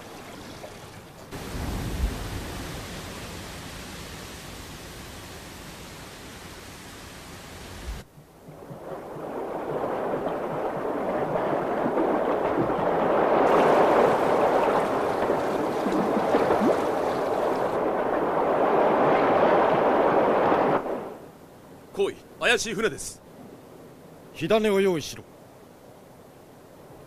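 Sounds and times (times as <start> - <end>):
rushing churning water: 0.0 - 21.2
wind: 0.0 - 27.0.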